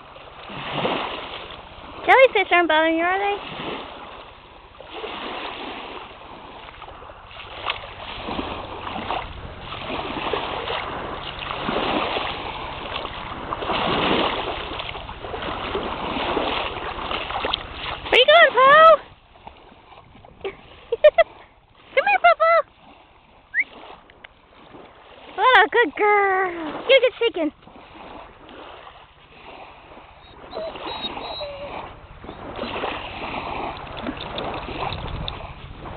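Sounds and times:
shallow water lapping: 0.0 - 35.9
small sharp splashes: 3.4 - 22.0
short squeaky notes: 30.2 - 32.8.

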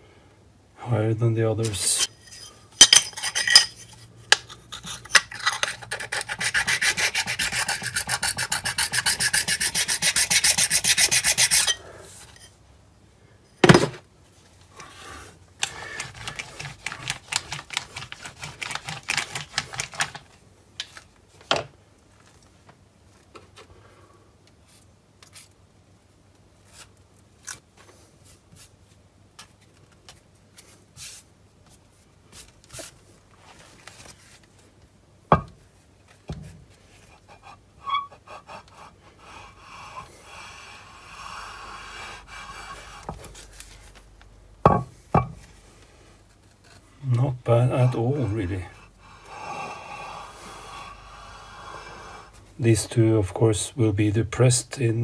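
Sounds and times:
abrasive stone rubbing steel: 4.8 - 12.5, 37.8 - 38.2.

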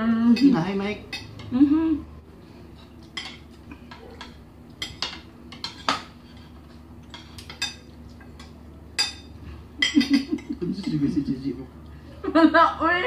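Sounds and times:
faint steady hum: 0.0 - 13.0
cutlery clinking on plates: 2.8 - 11.1.

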